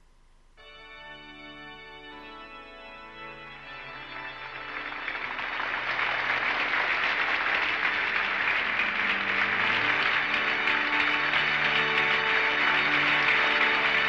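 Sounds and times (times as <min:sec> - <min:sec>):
film score with long held notes: 0:00.0 - 0:14.0
crowd applauding and cheering: 0:03.9 - 0:14.0.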